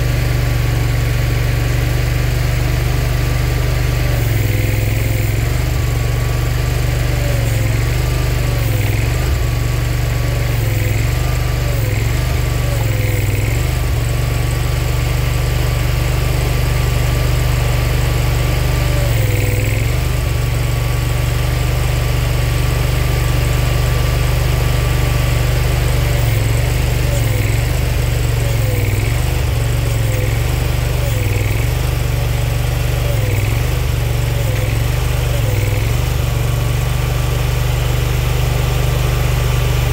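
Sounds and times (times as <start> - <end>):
engine running steadily: 0.0 - 39.9.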